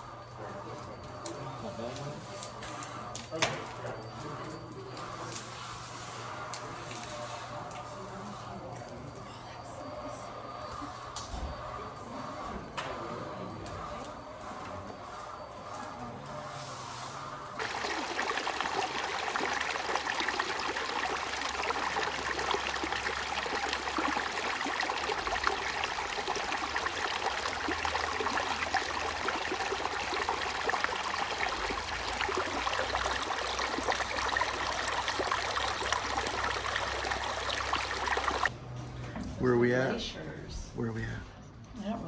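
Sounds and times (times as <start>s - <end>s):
water babbling over rocks: 17.6s - 38.5s.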